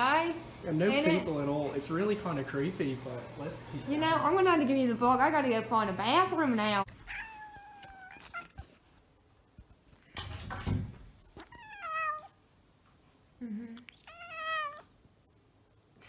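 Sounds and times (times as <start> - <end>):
cat meowing: 7.0 - 8.7, 11.4 - 12.4, 14.0 - 14.9.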